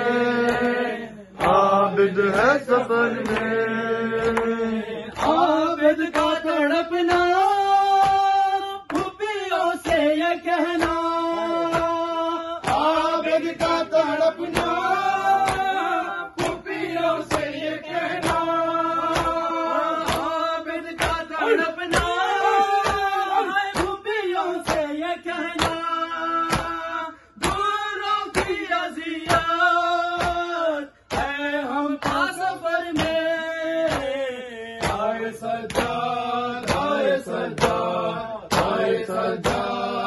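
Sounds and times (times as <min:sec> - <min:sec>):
men singing a lament: 0:00.0 - 0:40.0
chest slaps in unison: 0:18.2 - 0:20.4, 0:21.0 - 0:24.0, 0:25.6 - 0:26.8, 0:33.0 - 0:34.2, 0:34.8 - 0:39.9.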